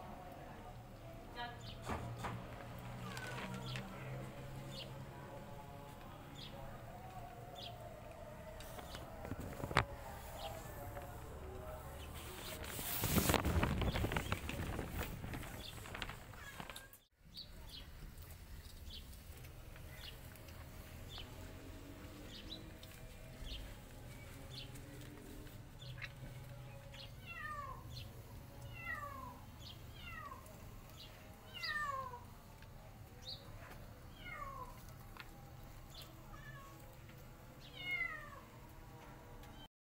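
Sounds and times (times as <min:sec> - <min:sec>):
kittens meowing: 0:27.2 - 0:27.9, 0:28.7 - 0:30.6, 0:31.4 - 0:32.3, 0:34.1 - 0:34.9, 0:36.3 - 0:37.0, 0:37.6 - 0:38.5.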